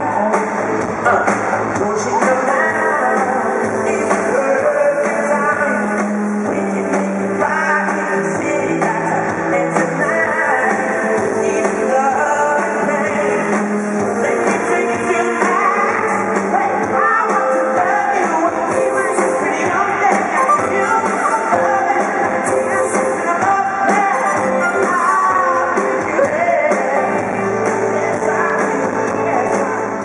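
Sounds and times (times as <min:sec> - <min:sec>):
live pop music with singing: 0:00.0 - 0:30.0.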